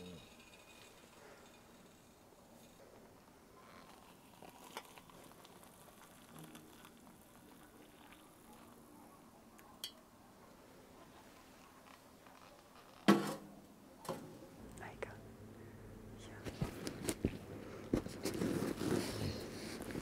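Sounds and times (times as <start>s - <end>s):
water pouring into metal mug: 3.8s - 8.7s.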